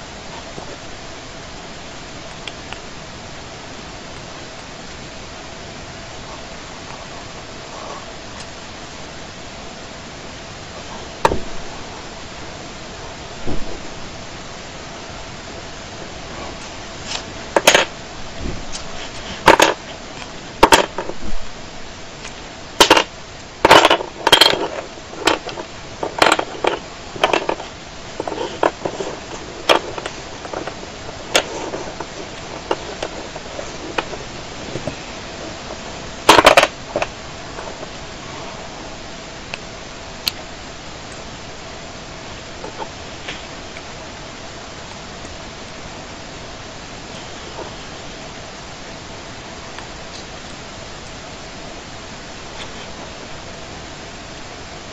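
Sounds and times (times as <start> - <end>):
steady hiss: 0.0 - 54.9
wooden puzzle pieces clacking: 17.1 - 17.9, 18.8 - 20.0, 20.6 - 21.2, 22.8 - 38.0.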